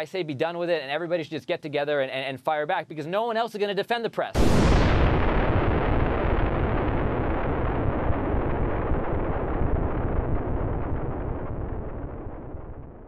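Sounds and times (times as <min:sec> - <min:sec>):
explosion rumble: 0:04.4 - 0:13.0.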